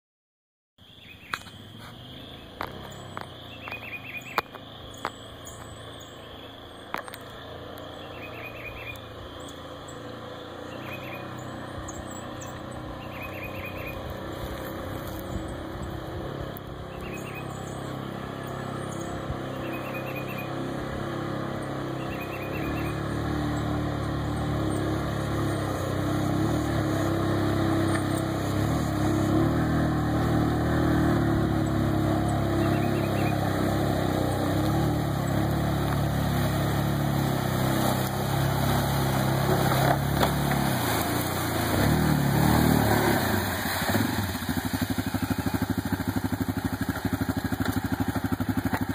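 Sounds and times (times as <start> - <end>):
quad engine running under load: 1.2 - 48.9
water sloshing: 34.0 - 48.9.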